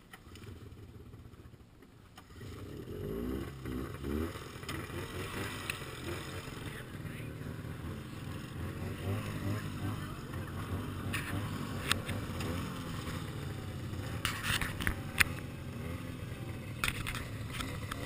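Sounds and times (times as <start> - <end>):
snowmobile engines idling: 0.0 - 18.0
sharp clicks and knocks: 16.8 - 18.0.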